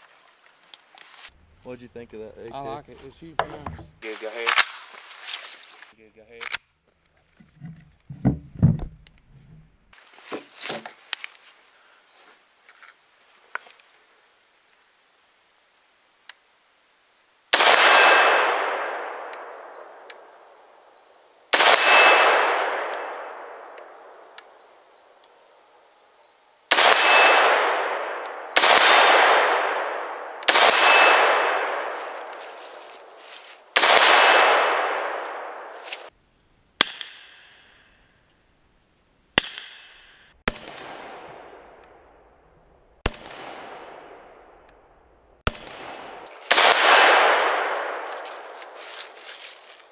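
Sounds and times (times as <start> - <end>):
rifle shots with ringing tail: 17.5 - 20.9, 21.5 - 24.8, 26.7 - 36.1, 39.4 - 42.3, 43.0 - 44.6, 45.4 - 49.3.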